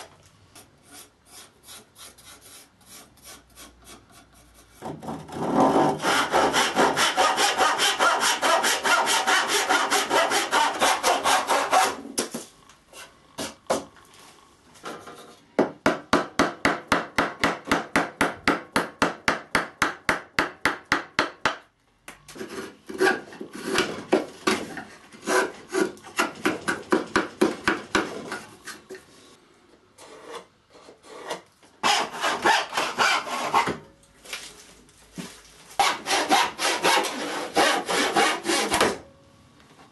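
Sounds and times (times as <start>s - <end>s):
scraping strokes on wood: 0.6s - 12.0s, 35.7s - 38.8s
hand saw cutting wood: 0.8s - 12.0s, 22.4s - 24.0s, 25.1s - 27.1s, 30.0s - 33.8s, 35.7s - 38.9s.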